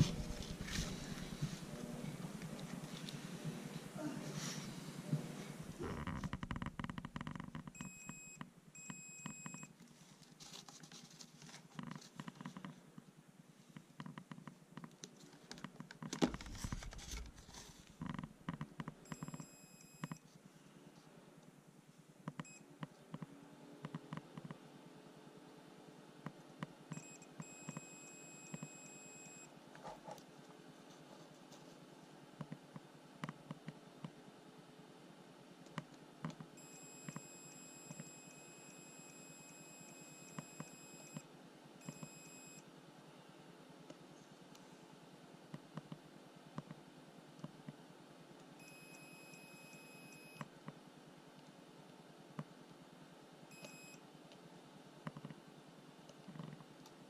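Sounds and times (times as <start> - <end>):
multimeter continuity beep: 7.8 - 9.7, 19.1 - 20.2, 26.9 - 29.5, 36.6 - 41.2, 41.8 - 42.6, 48.6 - 50.4, 53.5 - 54.0.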